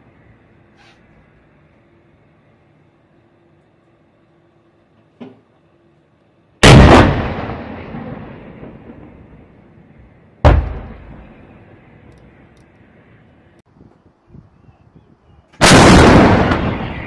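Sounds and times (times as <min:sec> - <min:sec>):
gun firing: 0:06.6 - 0:07.9, 0:10.4 - 0:11.4
rolling echo: 0:06.6 - 0:13.3.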